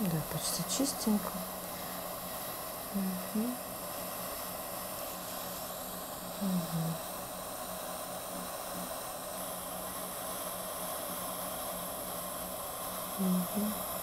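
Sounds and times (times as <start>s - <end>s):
facial steamer hissing: 0.0s - 14.0s
person humming: 6.4s - 7.0s, 13.2s - 13.8s.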